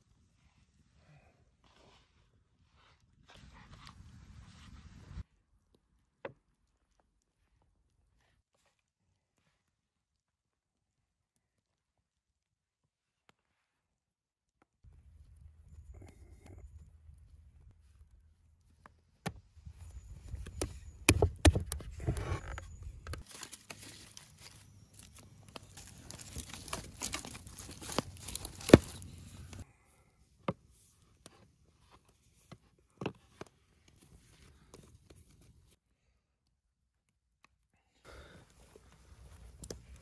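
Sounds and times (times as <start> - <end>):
wood fire crackling: 23.2 - 29.6.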